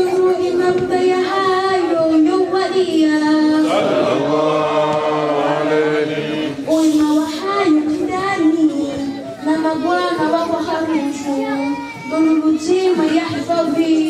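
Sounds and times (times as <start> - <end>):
voices chanting a devotional song: 0.0 - 11.0.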